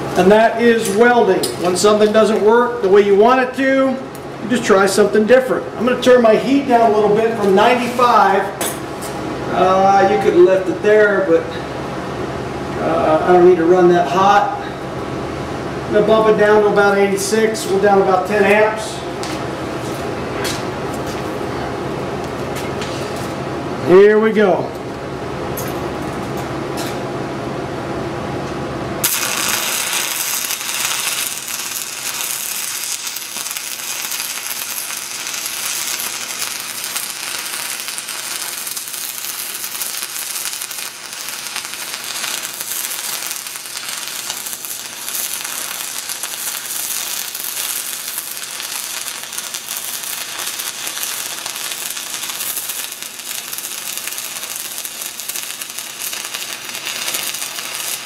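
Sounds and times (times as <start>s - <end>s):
welding arc crackling: 0.0s - 10.5s, 29.0s - 58.0s.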